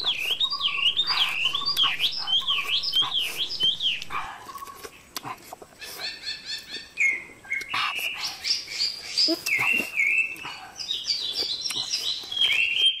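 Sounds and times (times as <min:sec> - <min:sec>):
birds chirping: 0:00.0 - 0:13.0.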